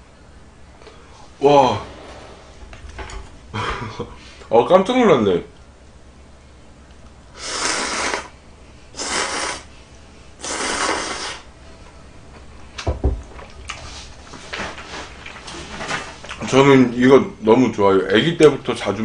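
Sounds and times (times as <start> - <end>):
loud noodle slurps: 7.4 - 8.3, 9.0 - 9.7, 10.4 - 11.5
dull thump: 12.8 - 13.4.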